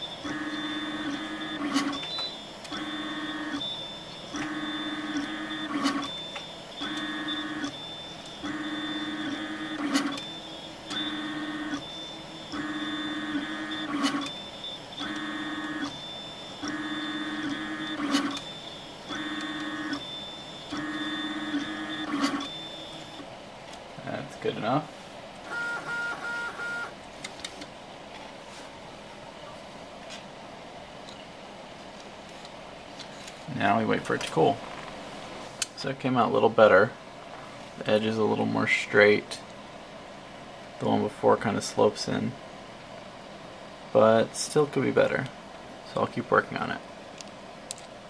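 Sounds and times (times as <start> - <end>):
stepper motors whining: 0.0 - 23.3
thin background whine: 0.0 - 48.0.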